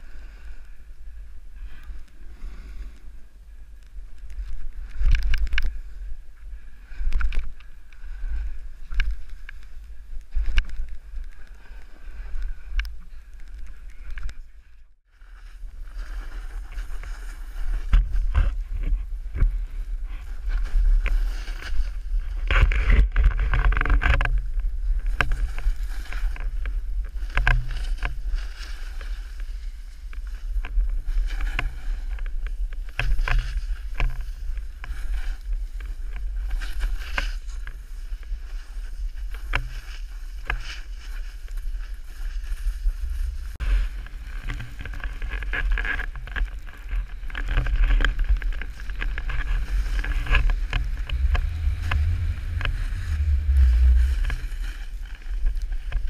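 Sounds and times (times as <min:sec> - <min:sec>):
snowboard scraping over snow: 0:15.4 - 0:22.8, 0:24.8 - 0:56.0
wind buffeting microphone: 0:42.4 - 0:44.9, 0:47.6 - 0:56.0.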